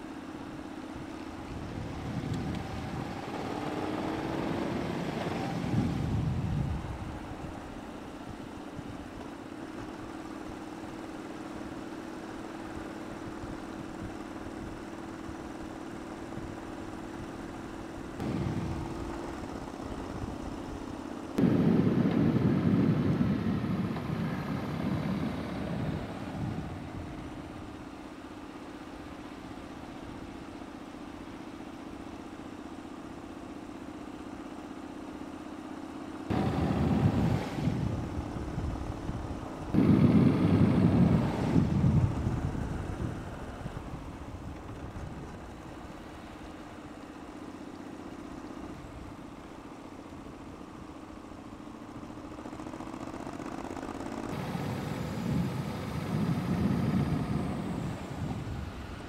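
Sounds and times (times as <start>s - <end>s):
vehicle engine droning: 0.0s - 59.0s
wind on microphone: 1.0s - 9.2s, 18.2s - 27.8s, 36.3s - 46.1s, 54.3s - 59.0s.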